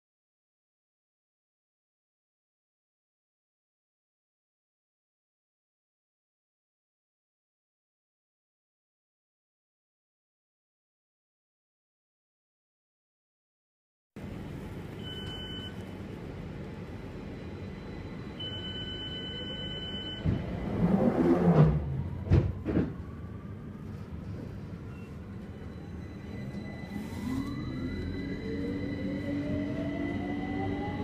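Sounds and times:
train rumbling: 0:14.2 - 0:31.0
traction motors whining: 0:24.3 - 0:31.0.

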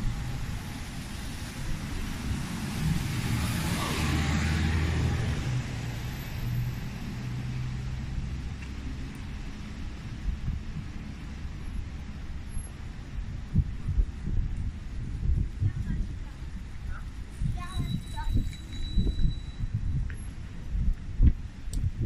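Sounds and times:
street traffic: 0:00.0 - 0:22.0
car driving past: 0:02.1 - 0:08.4.

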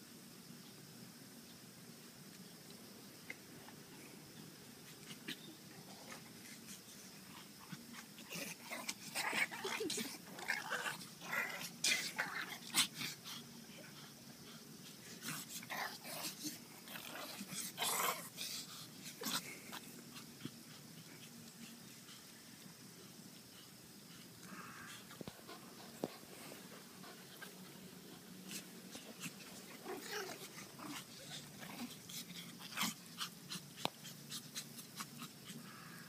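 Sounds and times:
dogs barking and growling: 0:05.0 - 0:14.0, 0:14.9 - 0:21.9, 0:24.1 - 0:36.0.

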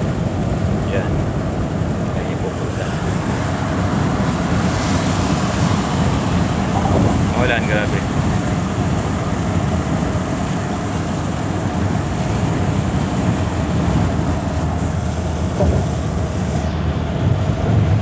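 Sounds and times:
rain on windshield: 0:00.0 - 0:18.0
tyre and engine rumble: 0:00.0 - 0:18.0.

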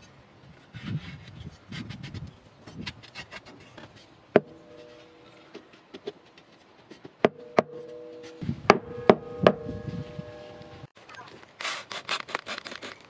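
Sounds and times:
axe head knocking with metallic ring: 0:04.4 - 0:05.3, 0:07.3 - 0:10.8.

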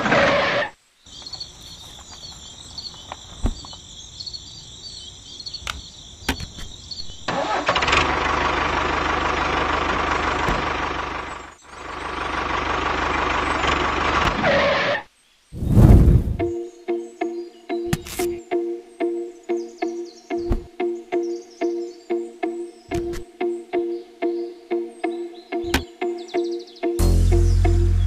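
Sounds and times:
tractor engine running: 0:07.3 - 0:14.8.

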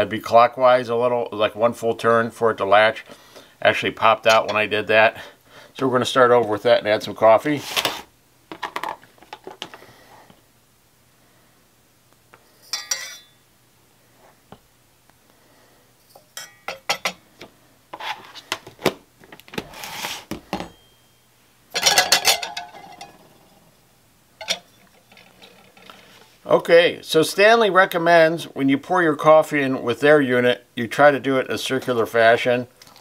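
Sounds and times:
spoon clinking on metal filter: 0:12.7 - 0:13.3, 0:16.1 - 0:17.2, 0:21.8 - 0:23.2, 0:24.4 - 0:26.2.

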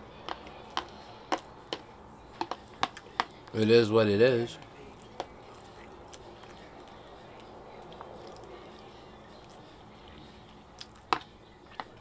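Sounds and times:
person chewing food: 0:00.0 - 0:03.6, 0:04.6 - 0:12.0.

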